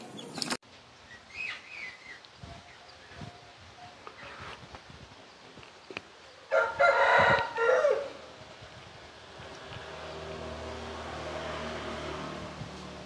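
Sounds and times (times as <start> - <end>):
rooster crowing: 6.5 - 8.3.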